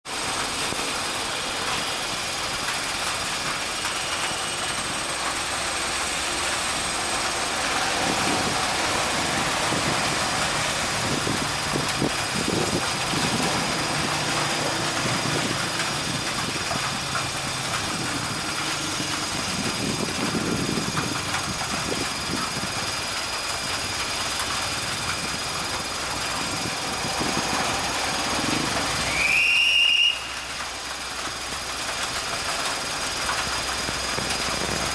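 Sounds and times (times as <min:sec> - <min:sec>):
heavy rain hissing: 0:00.1 - 0:34.9
locomotive diesel engine running: 0:00.1 - 0:34.9
locomotive horn: 0:29.1 - 0:30.5.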